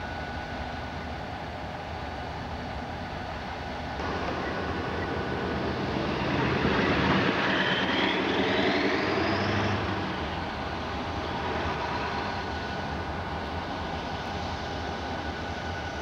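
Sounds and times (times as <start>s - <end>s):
diesel locomotive idling: 0.0s - 16.0s
rising whine: 4.0s - 15.9s.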